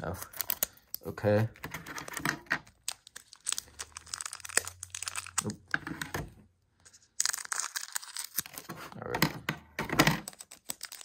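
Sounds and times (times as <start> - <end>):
foil wrapper crinkling and tearing: 2.7 - 5.6, 6.9 - 8.7, 10.2 - 11.0.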